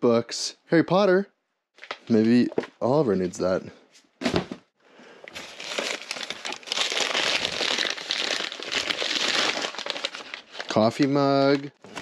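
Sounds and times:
crumpled paper rustling: 5.3 - 12.0.

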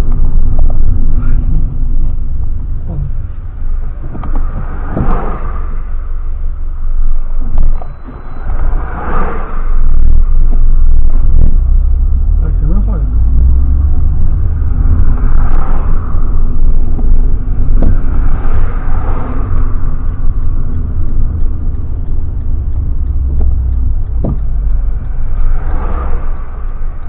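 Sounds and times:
loud low rumble: 0.0 - 27.0
short knocks: 23.3 - 24.5.

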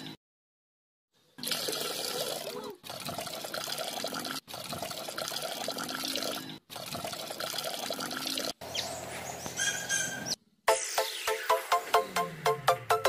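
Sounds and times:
wet cement pouring and gurgling: 1.4 - 8.6.

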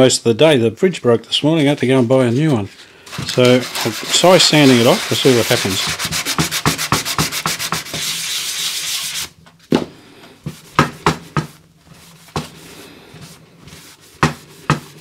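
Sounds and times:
sandpaper rubbing on plastic: 3.1 - 9.4.

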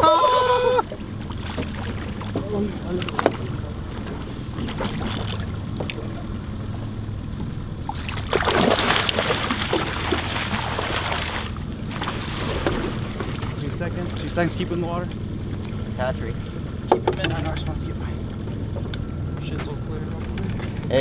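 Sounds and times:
water splashing: 0.0 - 6.9, 7.8 - 14.8
boat motor humming: 0.0 - 21.0.

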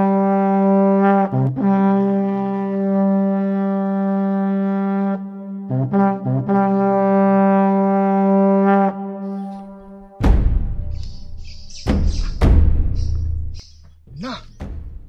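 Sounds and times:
loud low thump: 10.2 - 13.6.

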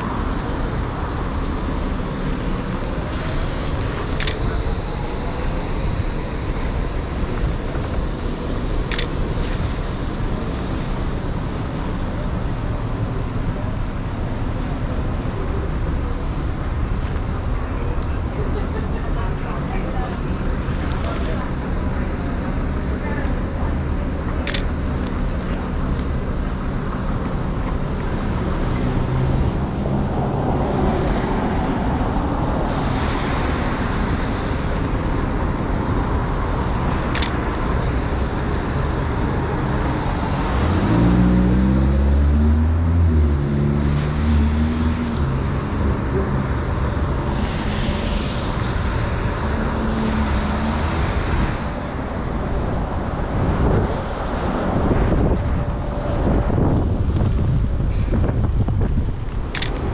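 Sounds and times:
city traffic on wet pavement: 0.0 - 59.9
camera shutter click: 4.2 - 4.4, 8.9 - 9.1, 24.5 - 24.7, 37.2 - 37.4, 59.6 - 59.8.

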